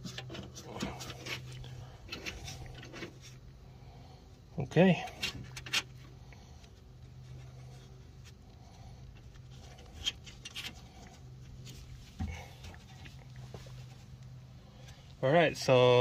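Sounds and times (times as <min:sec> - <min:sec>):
steady low hum: 0:00.0 - 0:16.0
clicks and scrapes of metal parts: 0:05.0 - 0:06.1, 0:09.1 - 0:11.9.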